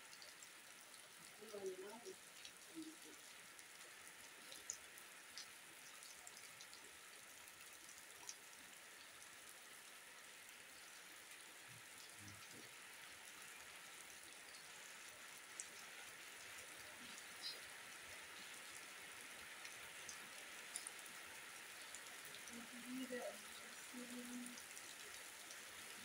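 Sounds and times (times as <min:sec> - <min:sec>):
rain falling on grass: 0:00.0 - 0:26.0
single raindrops landing close: 0:00.1 - 0:09.2, 0:16.5 - 0:26.0.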